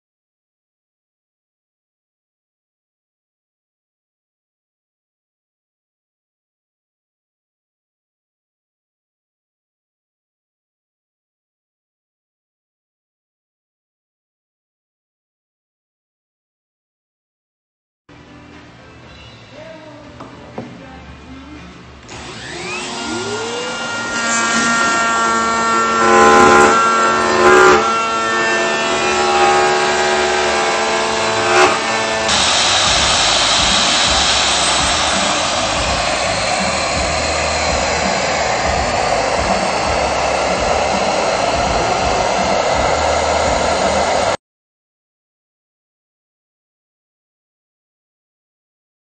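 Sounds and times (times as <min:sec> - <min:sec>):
dust extractor running: 0:22.1 - 0:44.4
router cutting wood: 0:22.1 - 0:44.4
router motor whine: 0:22.1 - 0:44.4.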